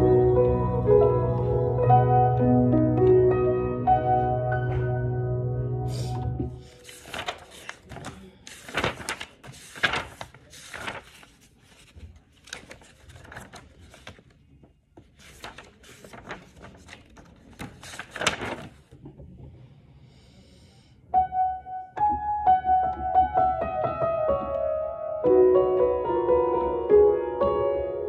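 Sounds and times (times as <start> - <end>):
upright piano playing: 0.0 - 6.8, 21.2 - 28.0
pages flipping and rustling: 6.0 - 19.1.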